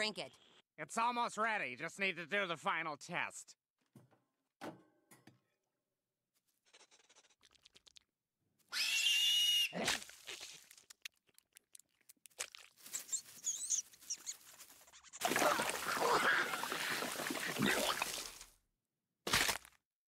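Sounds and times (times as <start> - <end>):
shrill rat screech: 8.7 - 9.8, 13.0 - 14.4
tearing knocks and squeaks: 12.9 - 15.2
faint quick lapping: 15.2 - 18.4.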